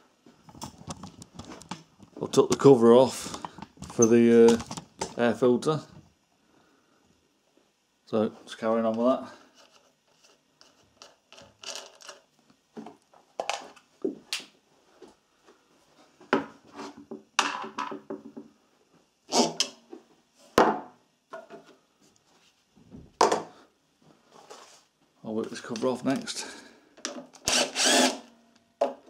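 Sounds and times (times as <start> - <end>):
clicks and knocks of parts: 0.5 - 5.2.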